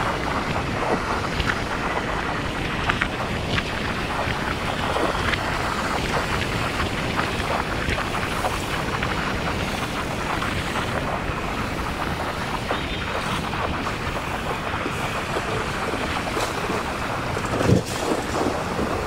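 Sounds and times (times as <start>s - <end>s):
road noise: 0.0s - 19.0s
wind buffeting microphone: 0.0s - 19.0s.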